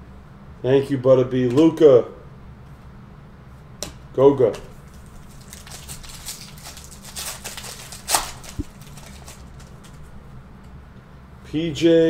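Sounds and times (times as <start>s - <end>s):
trading cards rustling: 4.9s - 10.2s.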